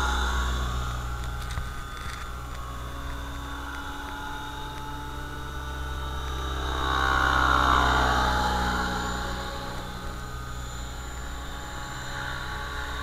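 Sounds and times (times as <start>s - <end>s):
model helicopter rotor whine: 0.0s - 13.0s.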